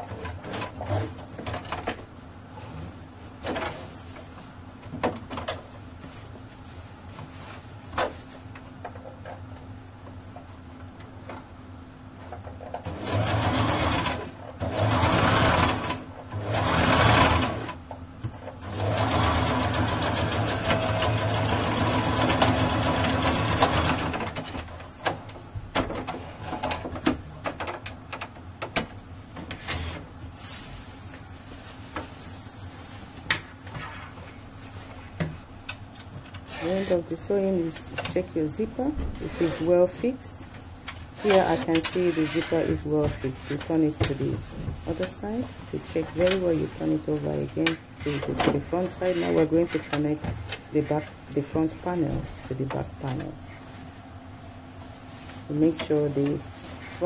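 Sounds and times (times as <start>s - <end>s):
sewing machine stitching: 12.8s - 17.8s, 18.6s - 24.4s.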